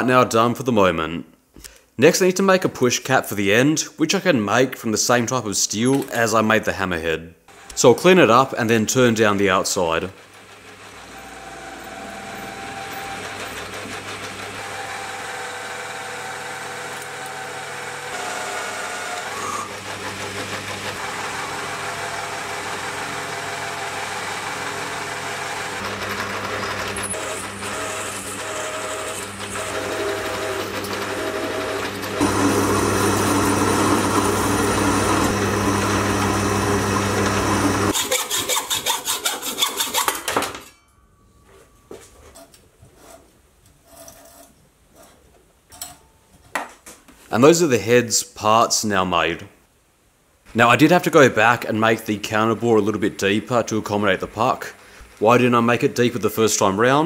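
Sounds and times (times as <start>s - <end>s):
metal lathe running: 10.1s - 38.0s
lathe tool cutting steel: 10.1s - 40.1s
hacksaw cutting steel: 24.3s - 32.3s, 37.9s - 40.8s.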